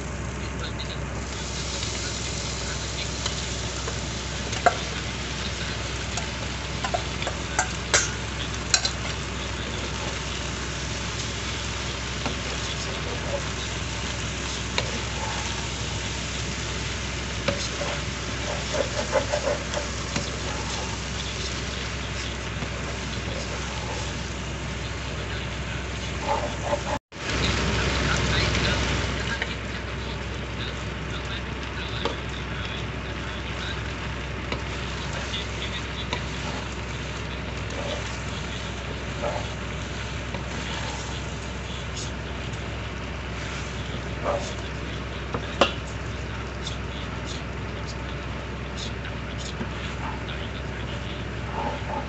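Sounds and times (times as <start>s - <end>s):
noodles and egg sizzling in pan: 1.3s - 26.6s, 33.2s - 47.7s
spatula scraping pan: 13.3s - 24.5s.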